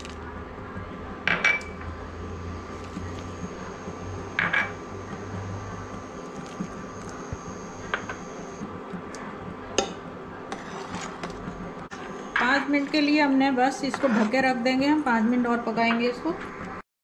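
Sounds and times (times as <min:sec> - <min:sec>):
induction cooktop humming: 0:00.0 - 0:16.8.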